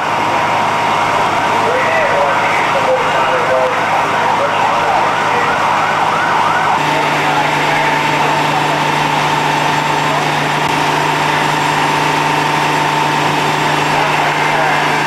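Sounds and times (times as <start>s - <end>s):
engine hum: 0.0s - 15.0s
faint siren wails: 1.6s - 8.8s
siren yelping: 1.7s - 8.4s.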